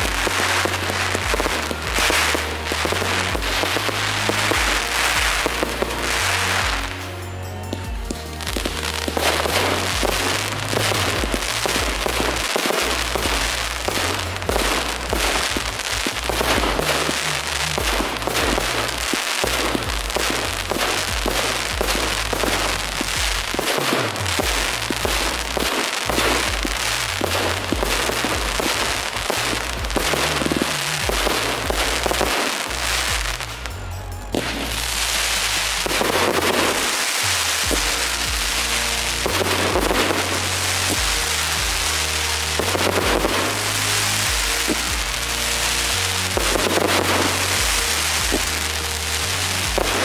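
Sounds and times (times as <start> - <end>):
crackling hiss of fireworks: 0.0 - 50.0
fireworks bangs and crackles: 0.0 - 50.0
music with deep bass: 0.0 - 50.0.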